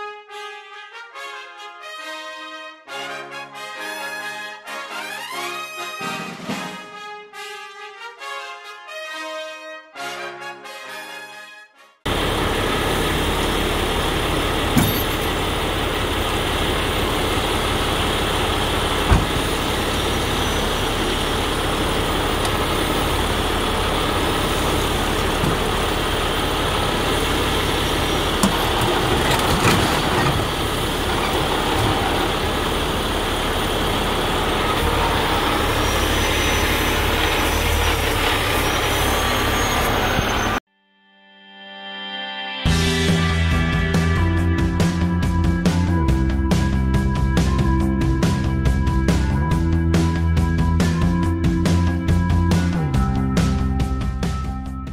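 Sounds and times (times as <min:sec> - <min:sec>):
diesel engine running: 0:12.1 - 0:40.6, 0:42.7 - 0:54.8
sharp metal clanks: 0:14.8 - 0:15.4.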